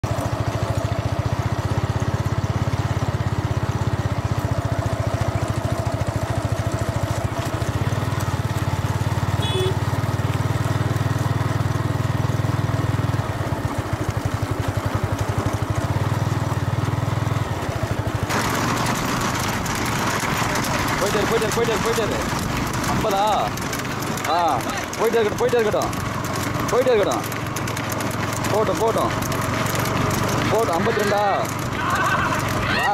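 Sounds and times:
motorcycle engine running: 0.0s - 32.9s
wind and road noise: 0.0s - 32.9s.

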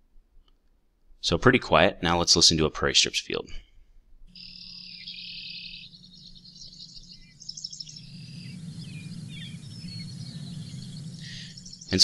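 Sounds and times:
low steady hum: 3.4s - 12.0s
songbirds chirping: 3.5s - 12.0s
long buzzy bird trill: 4.3s - 12.0s.

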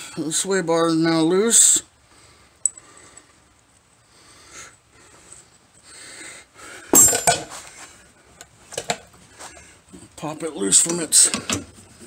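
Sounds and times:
faint breathing: 2.0s - 7.0s
tools and parts clattering: 6.9s - 7.6s.

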